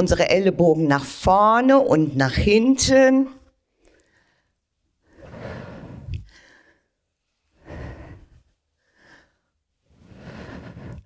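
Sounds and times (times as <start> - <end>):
woman breathing audibly: 3.8 - 11.0.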